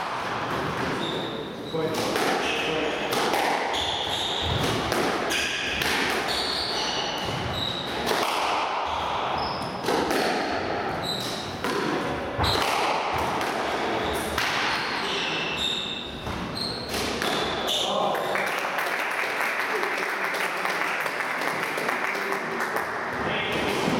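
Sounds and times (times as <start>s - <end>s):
squash ball hitting rackets and walls: 0.0s - 17.9s, 23.2s - 23.9s
shoes squeaking on wooden floor: 3.7s - 4.6s, 6.2s - 7.9s, 15.0s - 17.8s.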